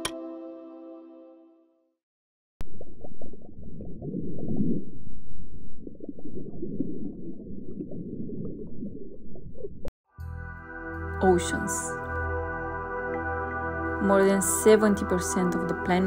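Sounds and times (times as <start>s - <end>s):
bubbling and crackling: 2.6s - 9.9s
underwater rushing: 2.6s - 9.9s.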